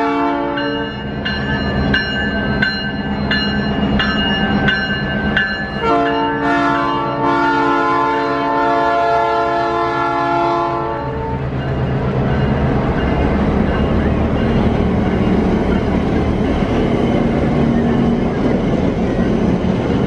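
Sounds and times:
locomotive air horn chord: 0.0s - 0.7s, 5.8s - 11.4s
locomotive bell ringing: 0.0s - 8.6s, 9.3s - 20.0s.

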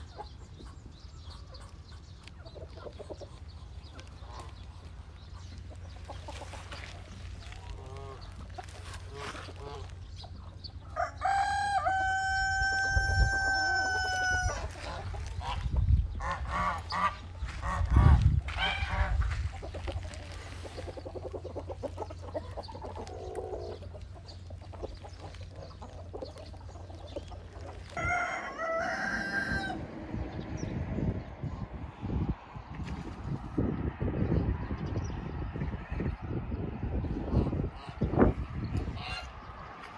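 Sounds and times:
chicken clucking: 0.0s - 29.0s
rooster crowing: 10.9s - 14.8s, 28.0s - 29.9s.

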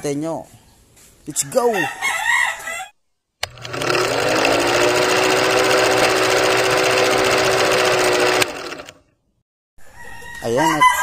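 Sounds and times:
film projector clattering: 3.4s - 9.0s
projector motor hum: 3.4s - 9.0s.

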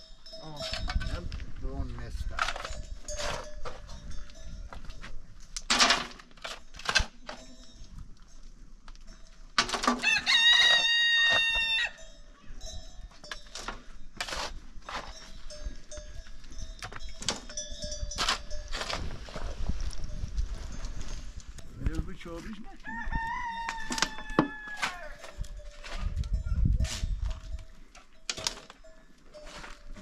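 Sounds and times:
rooster crowing: 10.0s - 12.0s, 22.8s - 25.2s
shovel digging into stony soil: 13.5s - 15.3s, 18.1s - 20.0s, 23.7s - 27.6s.

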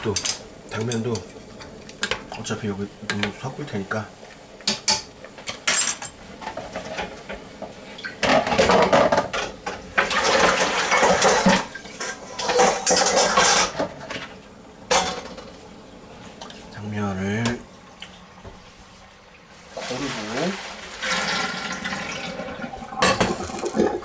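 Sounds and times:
metal pot and utensils clattering: 4.6s - 7.4s, 8.0s - 14.3s, 14.9s - 15.6s, 19.7s - 24.0s.

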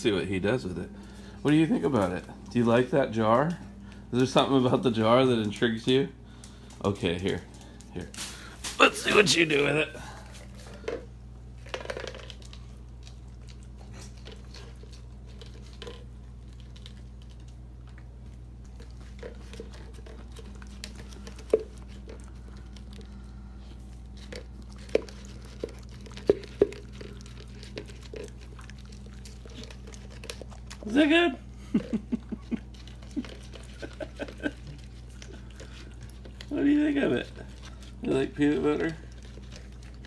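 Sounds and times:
dog licking: 18.7s - 40.0s.

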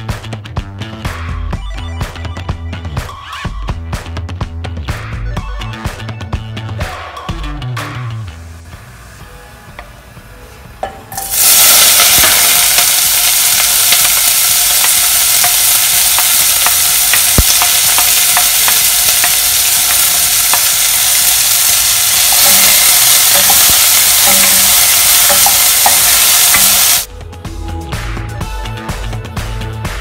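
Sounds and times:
onion sizzling in hot oil: 11.1s - 27.1s.

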